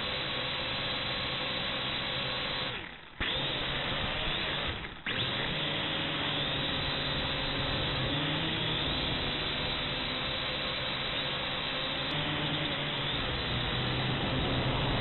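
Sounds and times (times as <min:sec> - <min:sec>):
drone motors and propellers whining: 0:03.2 - 0:15.0.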